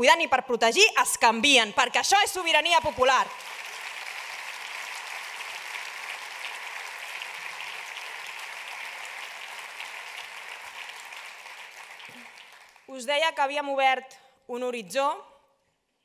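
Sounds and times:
audience applauding: 2.9s - 12.9s.

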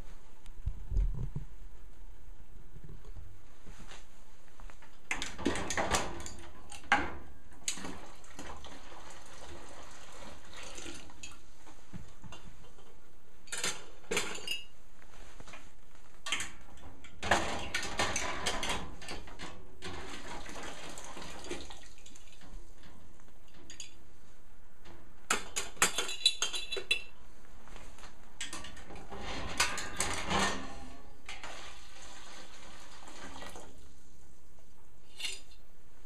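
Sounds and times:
glass jars clinking against metal: 14.2s - 14.7s, 25.8s - 27.1s.

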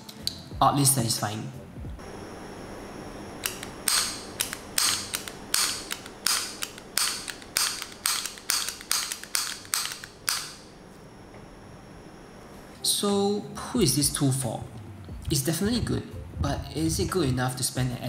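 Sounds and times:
sharp plastic clicks: 3.4s - 10.6s.

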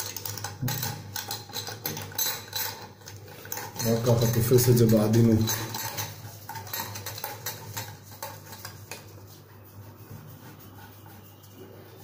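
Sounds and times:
drain fitting clicking and scraping: 0.0s - 9.1s.

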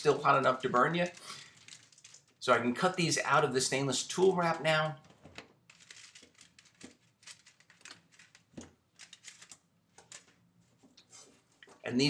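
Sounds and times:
foil crinkling and crackling: 0.0s - 2.4s.

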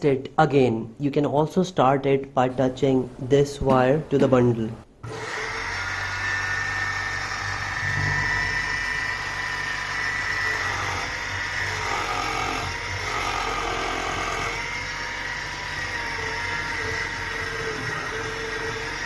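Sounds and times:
electric motor hum and whine: 5.0s - 19.0s.

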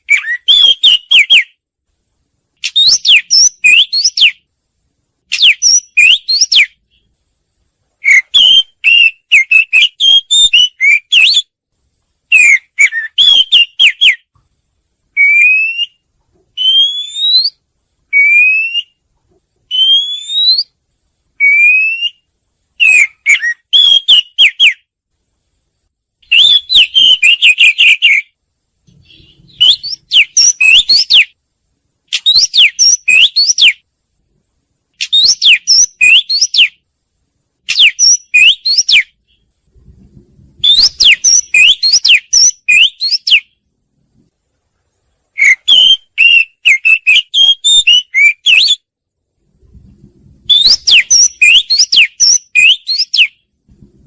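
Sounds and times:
bird singing whistled notes: 0.0s - 1.6s, 2.6s - 4.5s, 5.3s - 7.1s, 8.0s - 11.6s, 12.3s - 14.3s, 15.2s - 19.0s, 19.7s - 20.8s, 21.4s - 24.9s, 26.2s - 31.4s, 32.1s - 33.8s, 35.0s - 36.8s, 37.7s - 39.5s, 40.6s - 43.6s, 45.4s - 48.9s, 50.4s - 53.5s.

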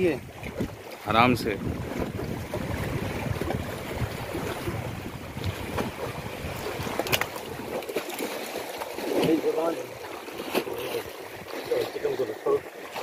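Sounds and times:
wind buffeting microphone: 0.0s - 7.8s.

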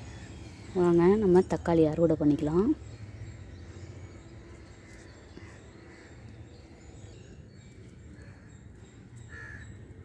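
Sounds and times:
faint bird calls: 9.2s - 9.8s.

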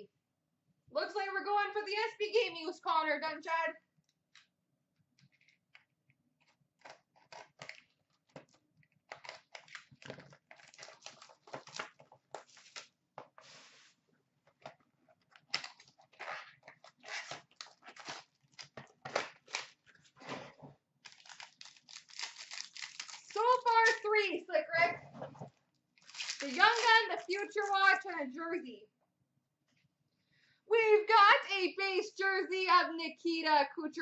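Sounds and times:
cardboard and plastic crinkling: 6.5s - 13.9s, 14.5s - 20.4s, 21.0s - 24.0s, 25.1s - 27.8s.

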